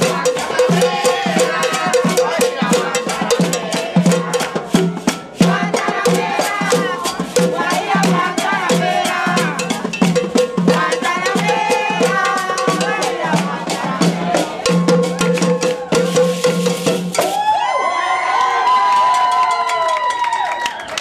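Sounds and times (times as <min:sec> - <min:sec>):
voices singing and calling: 0:00.0 - 0:16.2
hand drums: 0:00.0 - 0:17.6.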